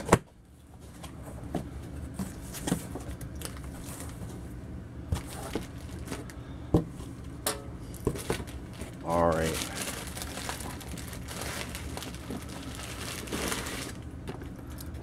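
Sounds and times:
cardboard box rustling: 9.6 - 14.0.

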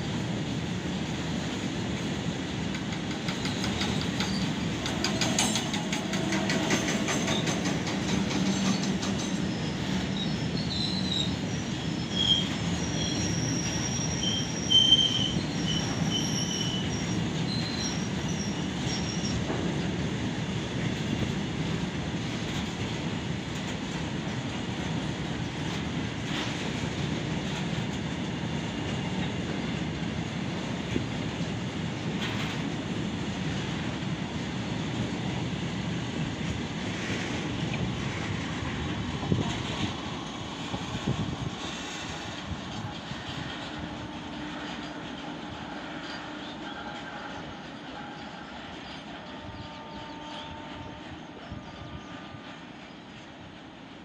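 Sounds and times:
train wheels rumbling on rails: 0.0 - 54.0
high wheel squeal: 8.2 - 19.5.

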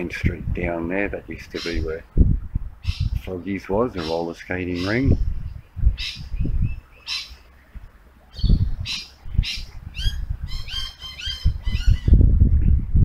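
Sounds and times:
birds chattering: 1.1 - 2.0, 2.8 - 12.2
birds squawking: 1.5 - 2.0, 2.8 - 3.2, 4.0 - 5.2, 6.0 - 7.5, 8.3 - 12.2.

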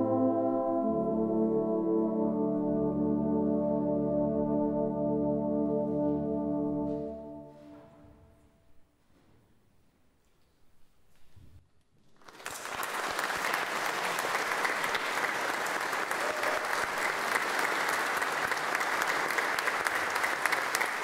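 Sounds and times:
audience applause: 12.2 - 21.0.

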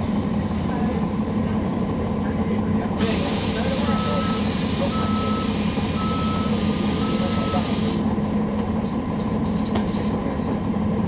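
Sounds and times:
diesel bus idling: 0.0 - 11.0
short warning beeps: 3.8 - 7.7.

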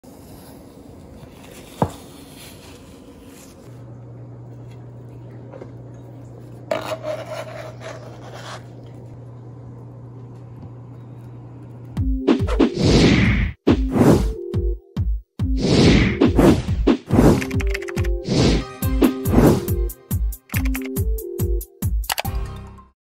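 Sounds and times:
low steady hum: 0.1 - 12.0
spatula scraping glass dish: 6.7 - 8.8
sharp click: 22.0 - 22.3.

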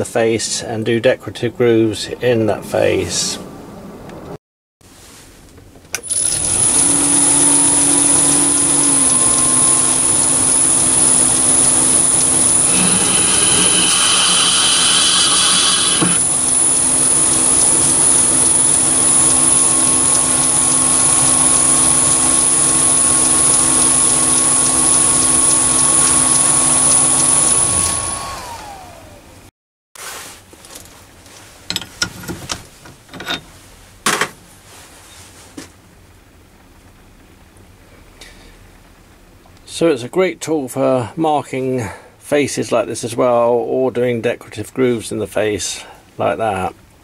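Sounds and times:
tool cutting steel: 6.0 - 28.6, 33.1 - 33.5
lathe whine and motor hum: 6.0 - 29.5.

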